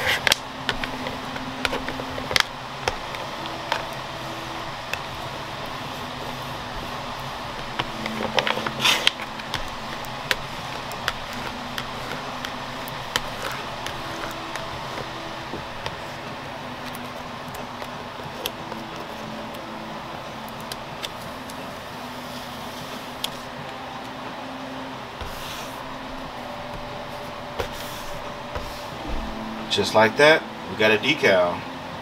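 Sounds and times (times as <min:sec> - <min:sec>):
plastic card scraping tape: 0:00.0 - 0:04.0, 0:07.4 - 0:16.2
tape clicks and crackles: 0:00.0 - 0:24.2
steady hum: 0:00.0 - 0:32.0.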